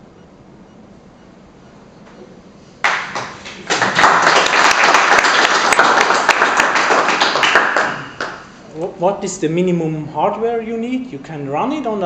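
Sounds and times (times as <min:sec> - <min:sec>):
audience applauding: 0:02.8 - 0:08.5.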